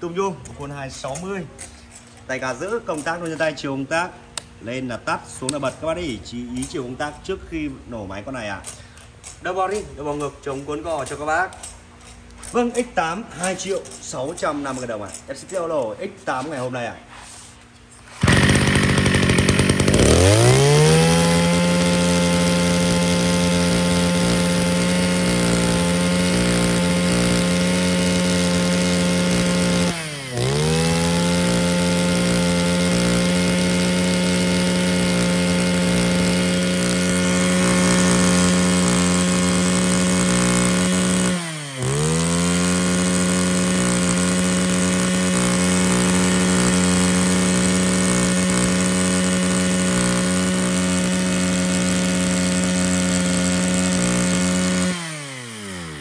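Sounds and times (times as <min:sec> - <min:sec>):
brush cutter engine revving: 0:10.2 - 0:15.2, 0:18.0 - 0:56.0.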